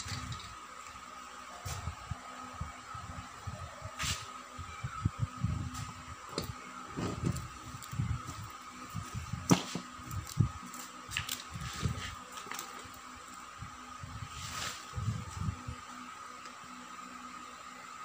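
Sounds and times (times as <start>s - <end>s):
faint steady high tone: 4.6s - 5.2s.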